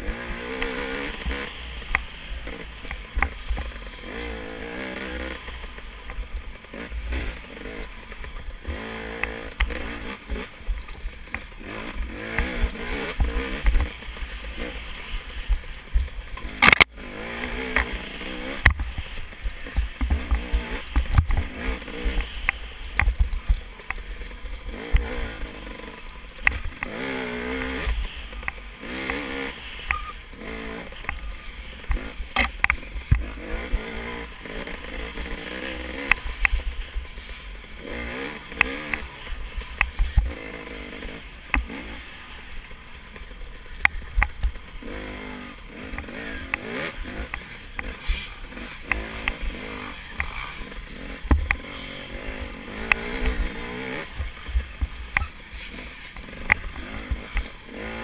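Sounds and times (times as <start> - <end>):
dirt bike engine revving: 0.0 - 58.0
bike knocks and rattles: 17.6 - 24.1, 29.9 - 34.2, 51.0 - 51.9.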